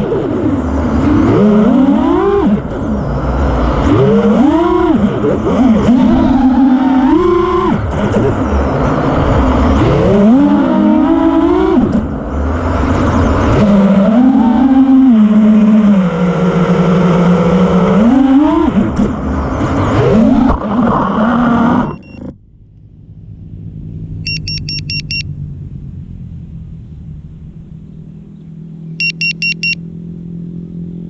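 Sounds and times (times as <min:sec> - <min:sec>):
drone motors whining: 0:00.0 - 0:23.0
low steady hum: 0:18.8 - 0:31.0
high electronic beeps: 0:21.9 - 0:22.2, 0:24.2 - 0:25.3, 0:29.0 - 0:29.8.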